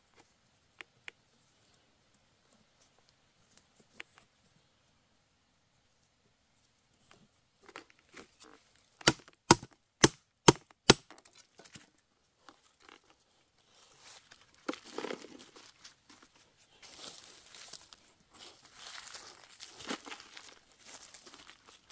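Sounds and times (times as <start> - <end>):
knife chopping: 9.0 - 11.0
leaf litter and soil crunching: 12.6 - 21.9.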